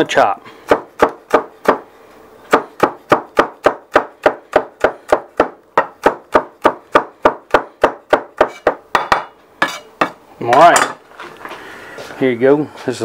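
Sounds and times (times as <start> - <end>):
knife chopping on wooden board: 0.7 - 1.8, 2.5 - 10.7.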